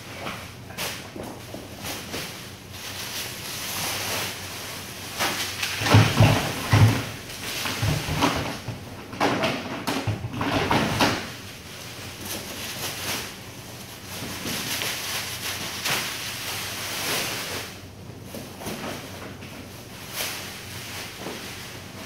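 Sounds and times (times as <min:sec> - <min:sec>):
plastic bag rustling: 0:00.0 - 0:09.0, 0:10.6 - 0:22.0
plastic crates clattering: 0:00.0 - 0:22.0.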